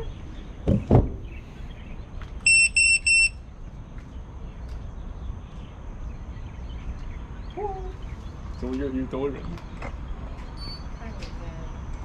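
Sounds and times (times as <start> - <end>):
high electronic beeps: 2.5 - 3.4.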